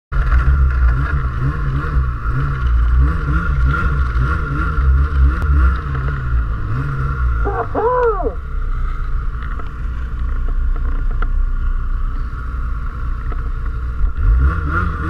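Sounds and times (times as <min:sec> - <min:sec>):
snowmobile engine revving: 0:00.2 - 0:08.4, 0:14.2 - 0:15.0.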